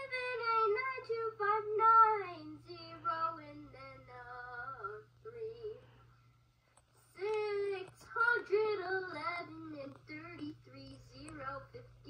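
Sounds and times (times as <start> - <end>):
woman singing unaccompanied: 0.0 - 6.0, 7.1 - 12.0
steady low hum: 0.0 - 12.0.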